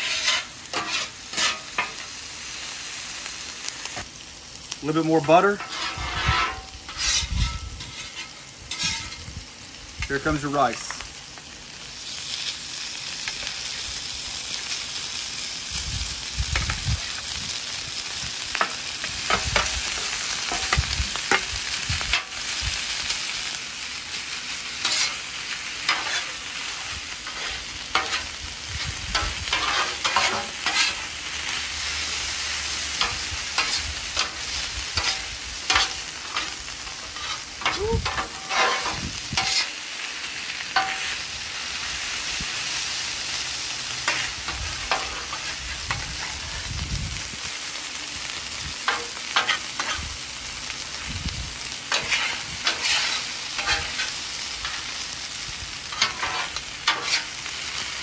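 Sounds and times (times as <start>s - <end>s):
metal spatulas scraping griddle: 0.0s - 2.1s, 5.2s - 9.2s, 24.8s - 28.3s, 29.1s - 31.1s, 32.9s - 39.8s, 40.8s - 41.2s, 44.0s - 46.4s, 48.9s - 50.0s, 51.9s - 55.0s, 55.9s - 57.4s
rice sizzling on griddle: 0.0s - 58.0s.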